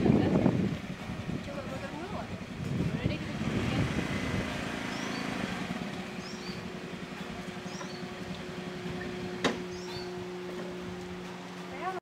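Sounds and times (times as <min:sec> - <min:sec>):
scooter engine idling: 0:00.0 - 0:12.0
small birds chirping: 0:04.8 - 0:10.3.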